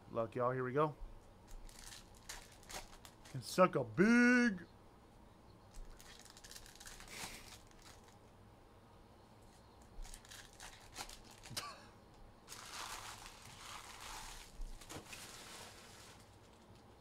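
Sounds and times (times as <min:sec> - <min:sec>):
card wrappers tearing and crinkling: 0:01.5 - 0:03.4, 0:05.8 - 0:08.2, 0:10.0 - 0:11.6, 0:12.5 - 0:16.8
rustling cards: 0:01.5 - 0:03.4, 0:05.7 - 0:08.2, 0:09.5 - 0:11.6, 0:12.5 - 0:16.9.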